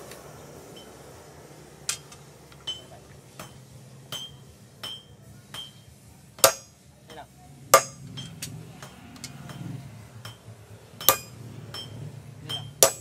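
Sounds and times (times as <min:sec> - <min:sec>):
hammer ringing on anvil: 0:02.7 - 0:05.8, 0:07.7 - 0:13.0.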